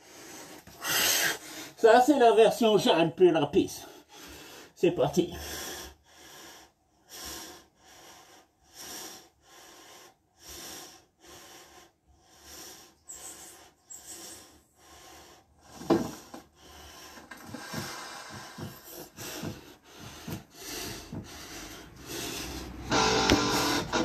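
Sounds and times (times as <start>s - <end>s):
heavy breathing through a mask: 0.0s - 1.8s, 3.8s - 24.0s
thuds on an exercise mat: 15.8s - 16.4s, 17.5s - 21.7s.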